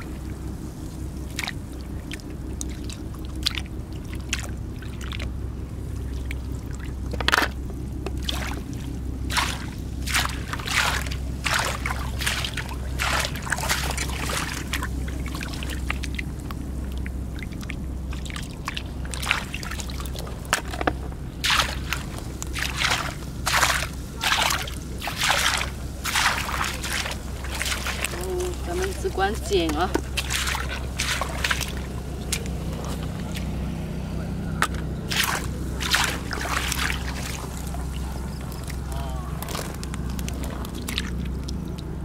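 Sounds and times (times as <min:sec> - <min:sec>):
boots wading through water: 0:00.0 - 0:42.0
steady low rumble: 0:00.0 - 0:42.0
water sloshing and splashing: 0:00.0 - 0:42.0.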